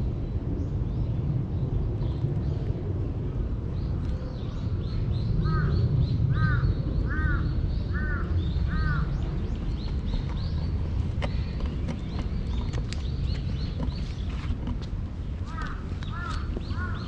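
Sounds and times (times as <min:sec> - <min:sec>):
small birds chirping: 0:03.7 - 0:17.0
crow cawing: 0:06.3 - 0:09.1, 0:15.5 - 0:17.0.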